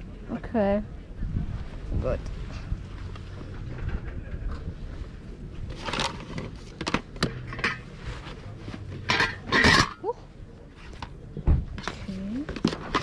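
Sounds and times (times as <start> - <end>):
small hard items clattering: 5.7 - 7.9, 11.8 - 13.0.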